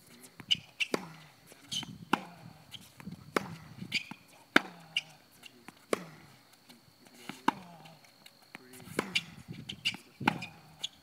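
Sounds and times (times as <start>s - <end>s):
tennis ball bouncing on court: 0.4s - 6.3s, 7.3s - 8.0s, 8.8s - 10.9s
tennis ball hitting racket: 0.4s - 6.4s, 7.3s - 8.0s, 8.7s - 11.0s.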